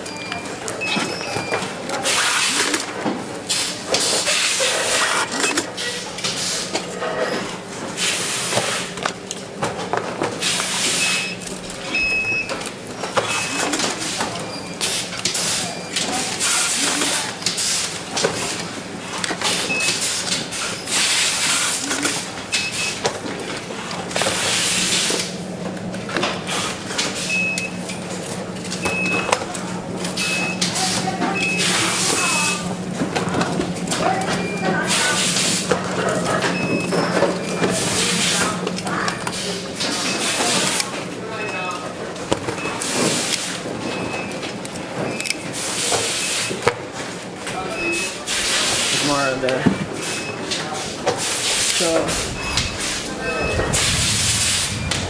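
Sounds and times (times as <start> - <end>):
steady low hum: 51.4 - 55.0.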